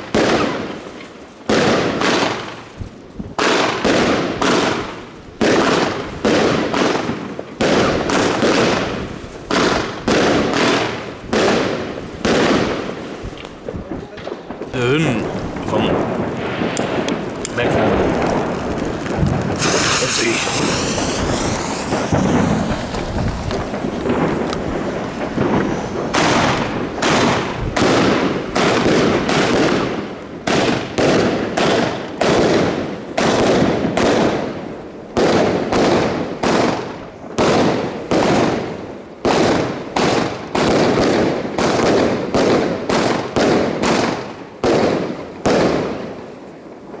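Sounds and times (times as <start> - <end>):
firework shots bursting overhead: 0.0 - 47.0
fuses hissing and crackling: 16.7 - 26.7.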